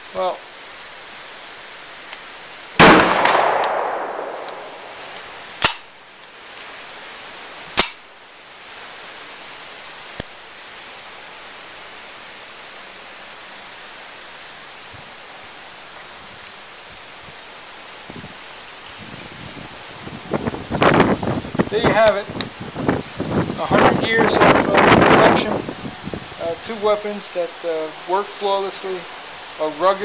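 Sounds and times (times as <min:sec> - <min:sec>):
sharp bangs echoing: 0:02.8 - 0:05.9.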